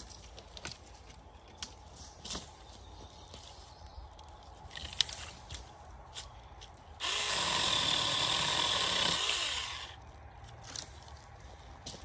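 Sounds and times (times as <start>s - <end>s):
electric chainsaw cutting: 7.0s - 10.0s.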